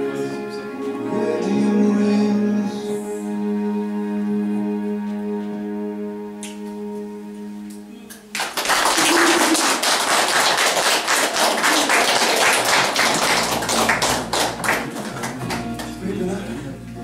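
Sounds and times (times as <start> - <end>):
people applauding: 8.1 - 16.7.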